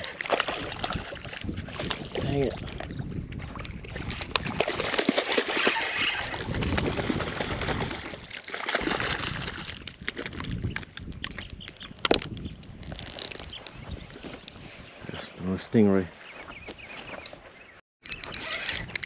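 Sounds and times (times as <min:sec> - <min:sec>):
water splashing: 0:00.0 - 0:10.4
sharp clicks and rustles: 0:09.2 - 0:14.6.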